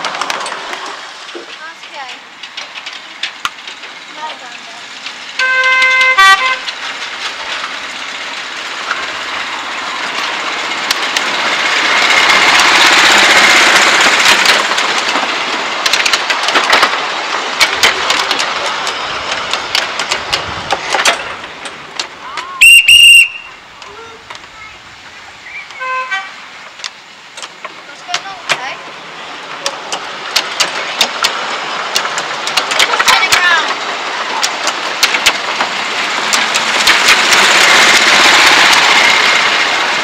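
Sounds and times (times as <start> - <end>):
coaches clicking over rail joints: 0.0 - 40.0
miniature train running past: 0.0 - 40.0
locomotive horn toot: 5.4 - 6.7, 22.6 - 23.6, 25.6 - 26.5.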